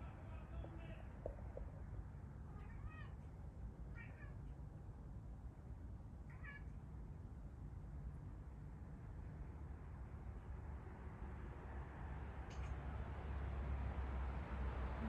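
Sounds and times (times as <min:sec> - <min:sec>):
cat meowing: 0:02.5 - 0:03.2, 0:03.9 - 0:04.4, 0:06.3 - 0:06.7.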